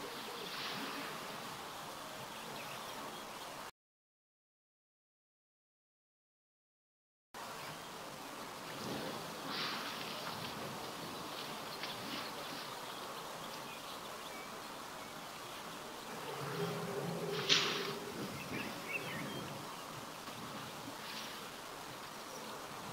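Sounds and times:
steady outdoor hiss: 0:00.0 - 0:03.7, 0:07.4 - 0:22.9
insect buzzing close by: 0:07.4 - 0:22.9.

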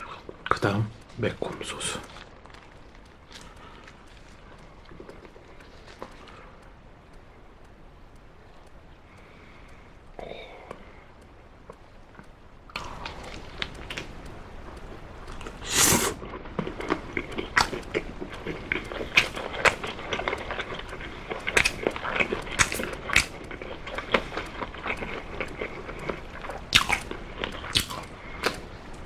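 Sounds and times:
chewing and mouth sounds: 0:00.0 - 0:07.3, 0:08.5 - 0:29.0.

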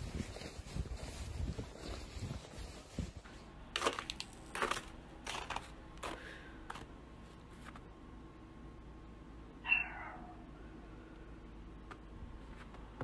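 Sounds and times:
footsteps crunching in snow: 0:00.0 - 0:06.9.

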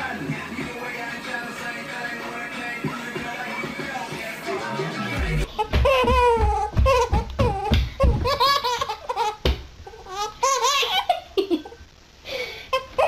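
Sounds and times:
baby laughing: 0:05.4 - 0:11.7.

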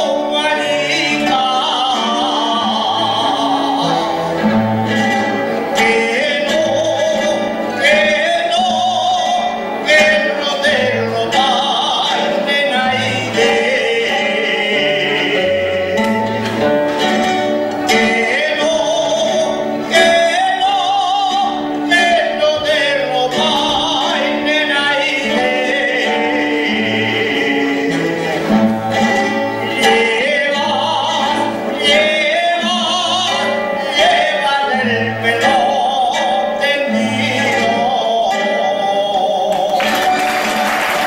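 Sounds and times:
guitar accompaniment: 0:00.0 - 0:41.0
man singing with vibrato: 0:00.0 - 0:41.0
applause: 0:39.6 - 0:41.0.

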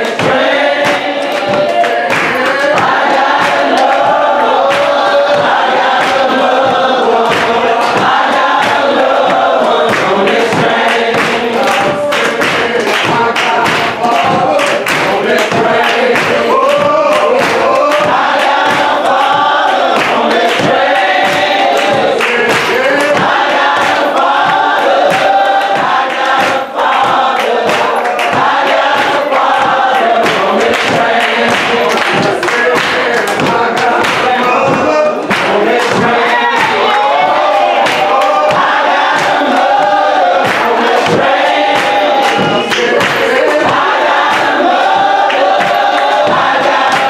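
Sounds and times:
congregation singing: 0:00.0 - 0:47.0
man singing gospel lead: 0:00.0 - 0:47.0
rhythmic hand clapping: 0:00.0 - 0:47.0.

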